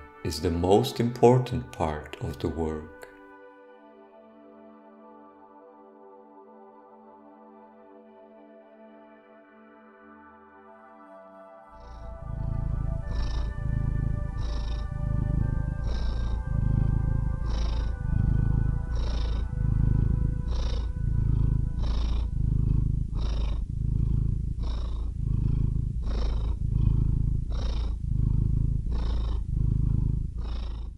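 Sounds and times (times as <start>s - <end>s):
cat purring close up: 0.0s - 3.1s, 11.7s - 30.9s
soft sustained music chord: 0.0s - 26.3s.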